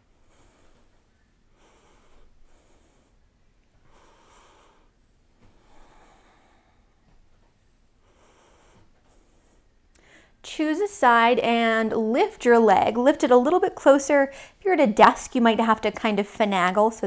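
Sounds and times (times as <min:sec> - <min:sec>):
woman breathing softly: 0:00.0 - 0:10.4, 0:14.3 - 0:14.6
low room hiss: 0:00.0 - 0:17.0.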